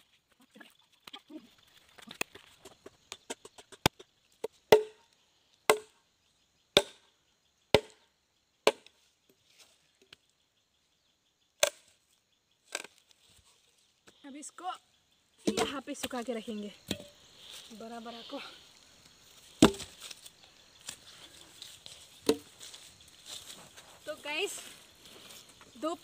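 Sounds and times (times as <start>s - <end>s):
machete chopping branch: 3.8s - 5.0s, 5.7s - 5.9s, 6.8s - 7.0s, 7.8s - 8.0s, 8.7s - 9.0s, 11.6s - 11.9s, 19.4s - 20.2s, 22.2s - 22.7s.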